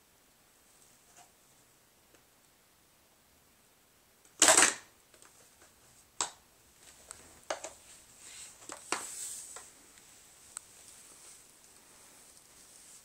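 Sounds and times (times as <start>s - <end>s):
plastic cans clattering on floor: 4.4s - 5.3s.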